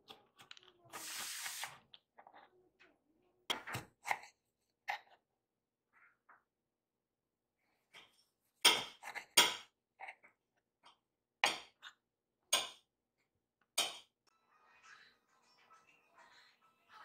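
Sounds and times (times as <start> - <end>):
kitchenware clinking and clattering: 7.9 - 10.4.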